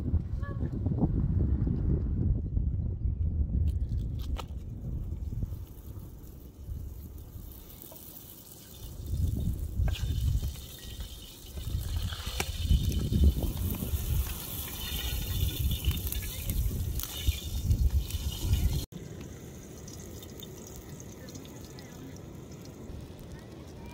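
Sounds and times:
dough sizzling in hot oil: 0:05.4 - 0:23.9.

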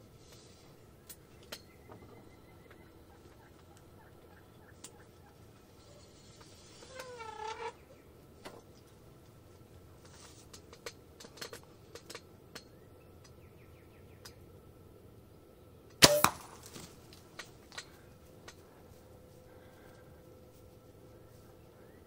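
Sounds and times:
turkey call: 0:02.3 - 0:06.1.

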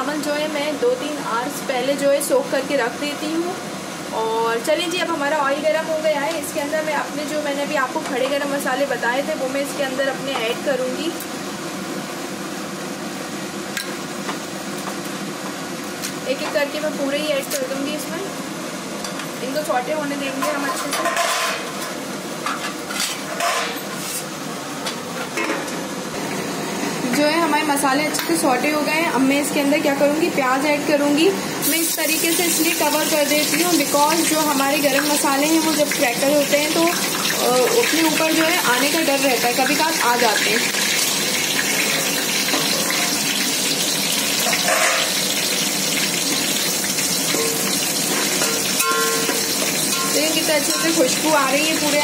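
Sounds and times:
spices sizzling in hot oil: 0:00.0 - 0:24.5, 0:26.1 - 0:52.0
steel plate clanking onto pot: 0:47.3 - 0:51.0.

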